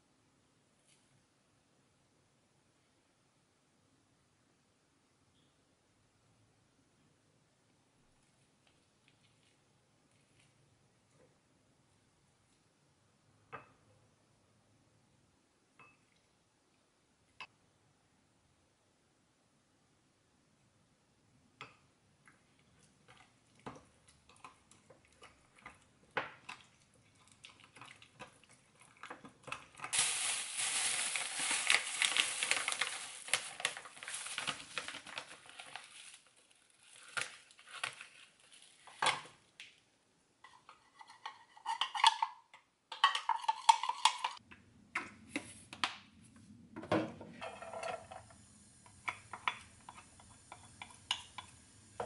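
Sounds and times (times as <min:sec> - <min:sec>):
spoon stirring in glass cup: 0:42.9 - 0:44.4.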